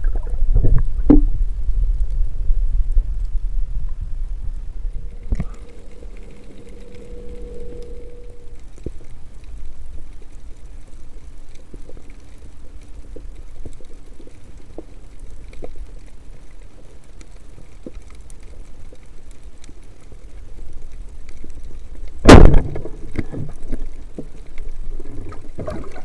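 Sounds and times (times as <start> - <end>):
faint underwater clicks and crackles: 0.0 - 26.0
underwater low rumble: 0.0 - 26.0.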